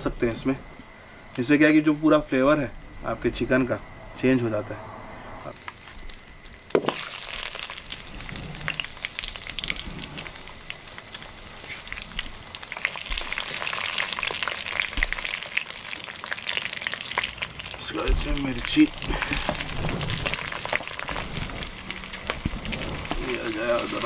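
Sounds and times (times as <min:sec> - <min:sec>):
garlic sizzling in oil: 0:05.5 - 0:24.0.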